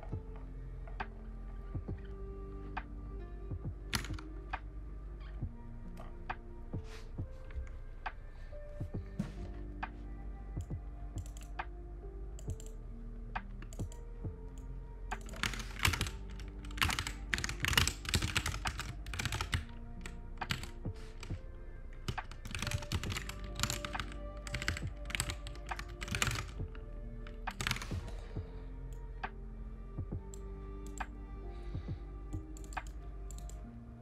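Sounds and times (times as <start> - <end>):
soft lofi music: 0.0 - 34.0
computer keyboard typing: 3.9 - 4.3, 10.6 - 11.6, 15.1 - 21.3, 22.1 - 28.2, 32.4 - 33.6.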